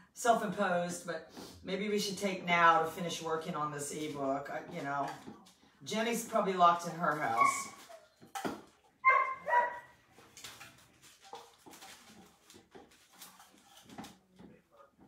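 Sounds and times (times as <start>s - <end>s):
dog yelping: 7.3s - 8.2s, 9.0s - 10.0s.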